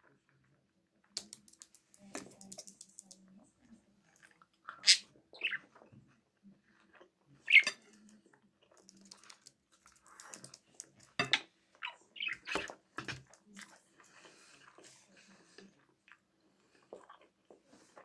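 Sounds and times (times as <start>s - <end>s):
budgerigar chirping: 4.7s - 5.6s, 7.5s - 7.8s, 11.8s - 12.6s.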